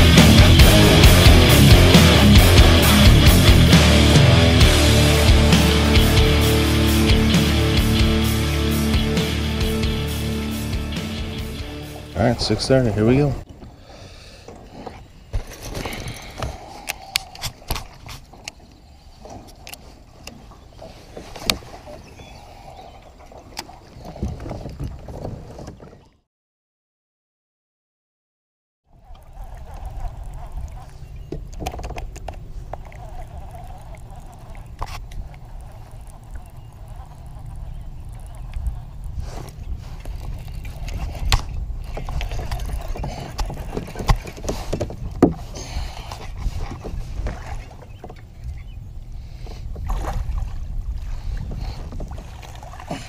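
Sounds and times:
low rumble: 0.0 - 13.4
water washing along kayak hull: 0.0 - 26.2, 28.9 - 53.0
wind buffeting microphone: 29.0 - 53.0.

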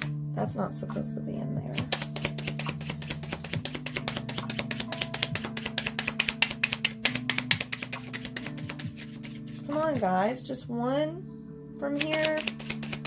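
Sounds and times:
soft background music: 0.0 - 13.0
cards being shuffled: 1.7 - 10.1, 11.9 - 13.0.

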